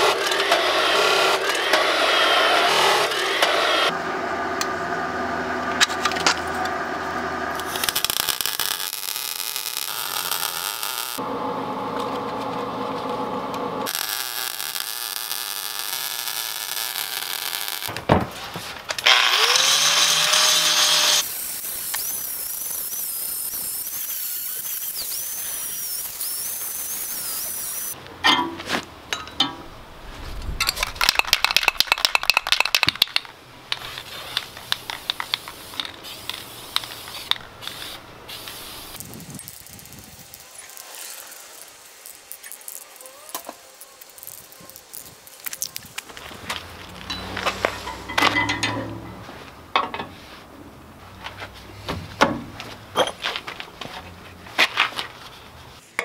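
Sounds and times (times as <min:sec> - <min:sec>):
angle grinder cutting steel: 0:00.0 - 0:04.8, 0:05.4 - 0:11.2, 0:13.8 - 0:17.9, 0:19.0 - 0:28.0, 0:33.7 - 0:49.2
arc welding crackle: 0:07.5 - 0:11.2, 0:13.8 - 0:18.0, 0:19.0 - 0:28.0, 0:33.1 - 0:47.9.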